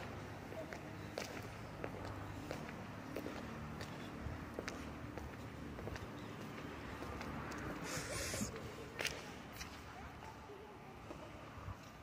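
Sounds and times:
footsteps on tiled floor: 0:00.0 - 0:12.0.

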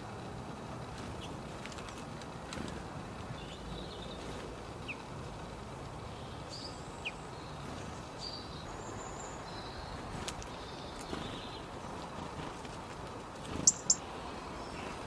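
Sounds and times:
low outdoor rumble: 0:00.0 - 0:15.0
small birds chirping: 0:00.8 - 0:15.0.

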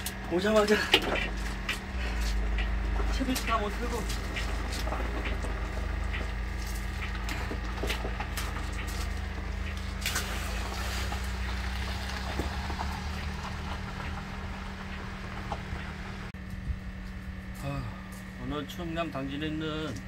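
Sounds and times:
steady low rumble: 0:00.0 - 0:20.0
fish splashing in water: 0:09.8 - 0:13.7.

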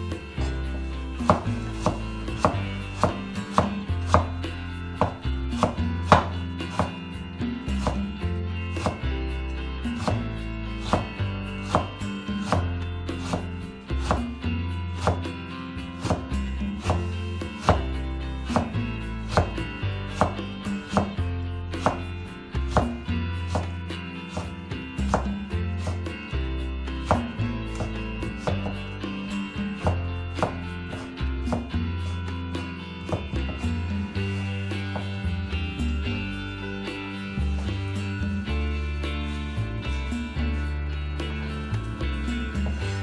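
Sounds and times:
background music: 0:00.0 - 0:43.0
cleaver chopping on cutting board: 0:01.1 - 0:04.4, 0:05.0 - 0:07.0, 0:07.8 - 0:08.1, 0:08.8 - 0:09.0, 0:10.0 - 0:14.4, 0:15.0 - 0:15.3, 0:16.0 - 0:17.9, 0:18.5 - 0:21.2, 0:21.8 - 0:22.1, 0:22.7 - 0:26.0, 0:27.0 - 0:28.8, 0:29.8 - 0:31.7, 0:33.1 - 0:33.8
knife knocking on wooden board: 0:05.0 - 0:07.0, 0:17.7 - 0:17.9.

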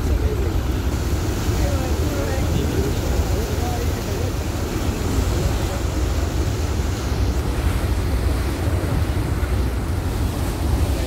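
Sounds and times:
rushing water: 0:00.0 - 0:11.0
wind buffeting microphone: 0:00.0 - 0:11.0.

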